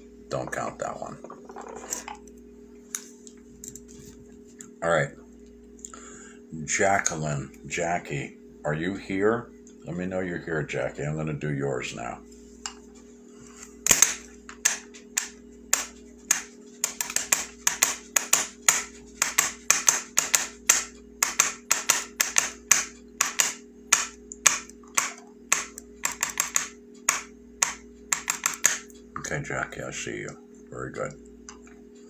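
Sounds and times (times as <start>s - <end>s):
low electrical hum: 0.0s - 32.0s
sharp irregular clicks: 13.9s - 29.0s.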